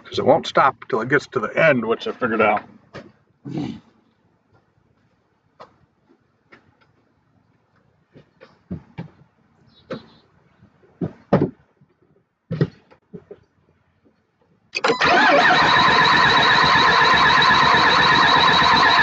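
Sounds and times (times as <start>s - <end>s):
thumps: 11.0s - 11.7s, 12.5s - 13.4s
starter motor cranking engine: 14.8s - 19.0s.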